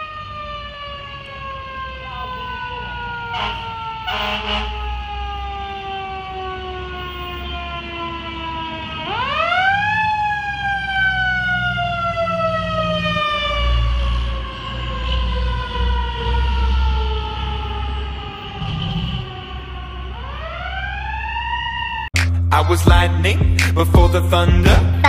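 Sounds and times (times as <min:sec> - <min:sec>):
truck engine rumble: 0:00.0 - 0:21.5.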